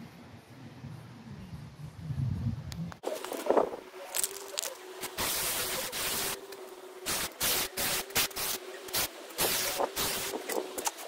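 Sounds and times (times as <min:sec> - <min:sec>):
bursts of hissing: 0:04.2 - 0:11.0.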